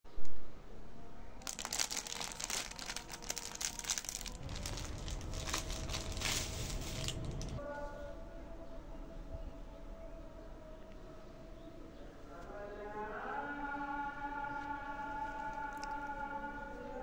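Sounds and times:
plastic packaging crinkling: 1.4s - 7.6s, 15.4s - 16.1s.

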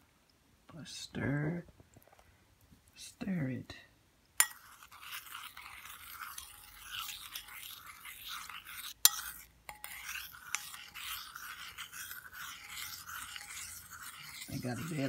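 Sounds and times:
spoon clinking against bowl: 4.4s - 15.0s
spoon scraping ceramic bowl: 4.4s - 15.0s.

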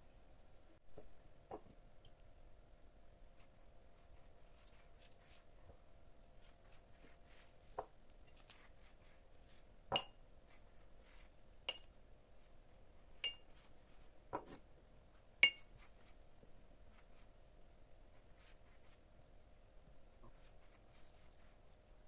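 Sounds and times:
faint steady hum: 0.0s - 22.0s
brush clinking ceramic bowl: 9.9s - 10.2s, 11.7s - 12.0s, 13.2s - 13.6s, 15.4s - 15.8s.

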